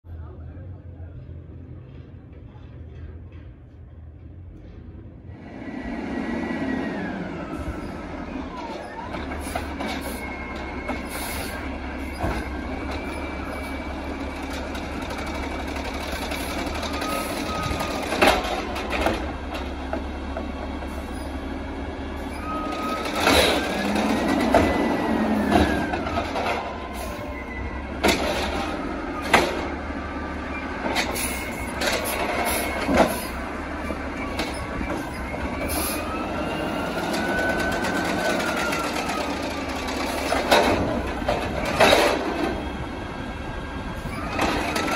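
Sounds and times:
garbage truck running: 1.5s - 44.9s
hydraulics whining: 4.6s - 44.9s
carts banging against hopper: 14.9s - 20.6s, 22.6s - 26.8s, 28.0s - 29.8s, 36.9s - 42.8s.

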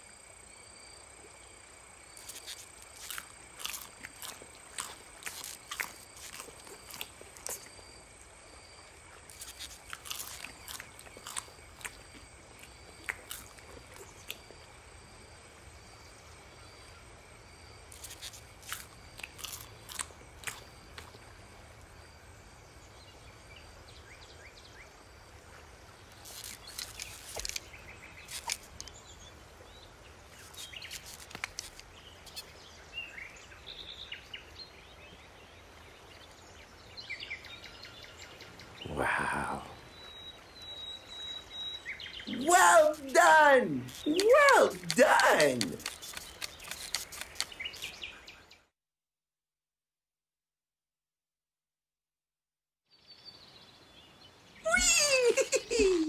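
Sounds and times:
crunchy clicks: 26.2s - 27.7s, 30.4s - 32.4s, 43.8s - 48.0s.

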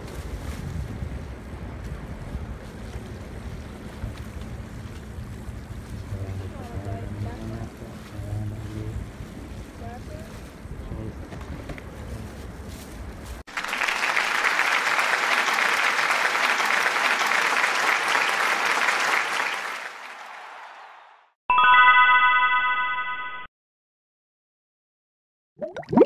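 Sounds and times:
wind rumble on microphone: 0.0s - 13.4s
applause sound effect: 13.5s - 21.4s
bright chime: 21.5s - 23.5s.

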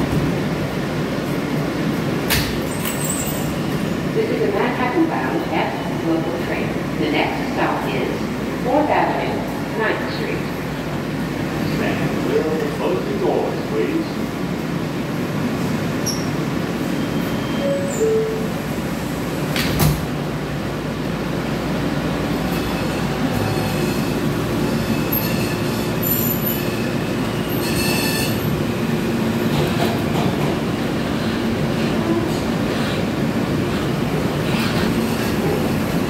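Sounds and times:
subway train rumbling: 0.0s - 36.0s
wheel squeal on rails: 2.7s - 3.6s, 22.6s - 28.6s.

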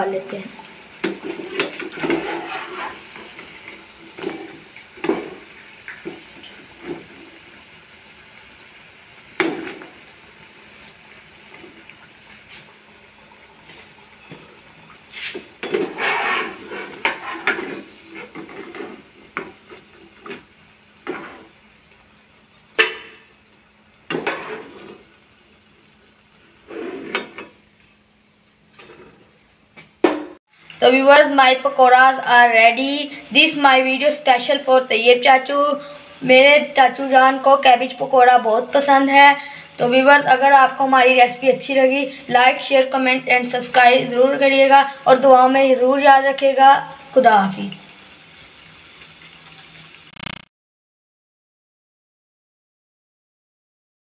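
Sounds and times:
oil sizzling: 0.0s - 50.5s
spoon scraping and knocking pan: 1.0s - 3.5s, 15.2s - 20.4s, 21.0s - 21.5s.

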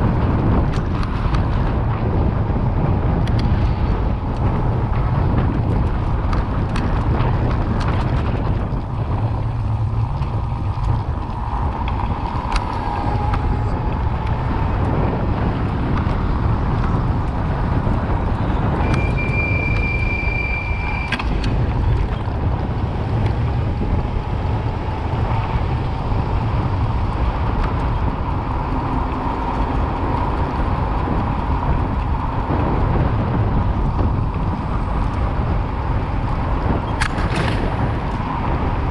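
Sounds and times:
street traffic: 0.0s - 38.9s
wind rumbling on microphone: 0.0s - 38.9s
high steady squeal: 18.4s - 21.6s.

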